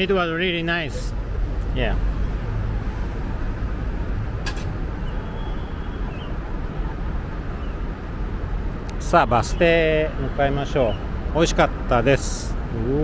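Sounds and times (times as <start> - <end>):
street traffic: 0.0 - 13.0
sharp click: 4.4 - 4.8
faint high chirp: 5.0 - 6.4.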